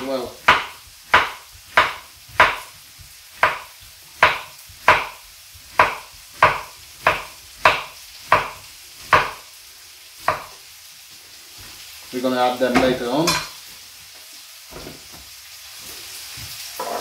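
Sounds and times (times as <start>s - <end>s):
knife chopping on wooden board: 0.4s - 9.5s, 10.2s - 10.6s.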